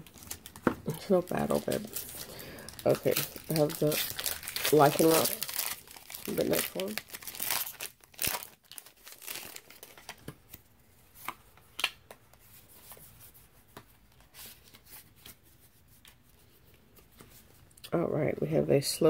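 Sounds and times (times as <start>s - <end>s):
foil wrapper crinkling and tearing: 0.0s - 10.3s.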